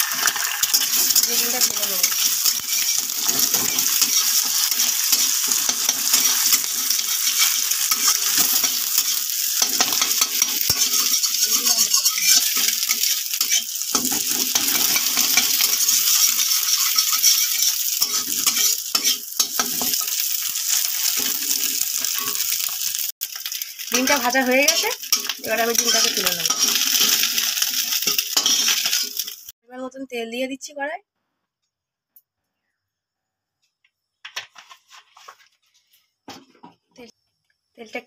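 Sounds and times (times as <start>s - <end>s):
metal spatula scraping a pan: 0.0s - 29.5s
egg sizzling in hot oil: 0.0s - 29.6s.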